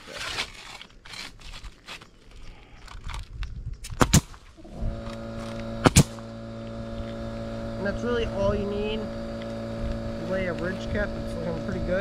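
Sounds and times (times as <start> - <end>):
nail gun firing: 3.8 - 4.4, 5.0 - 6.3
air compressor motor humming: 4.6 - 12.0.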